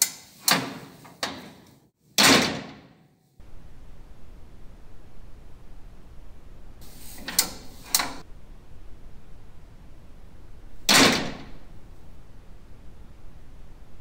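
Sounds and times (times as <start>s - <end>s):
stall door clacking shut: 2.2s - 2.8s, 10.9s - 11.6s.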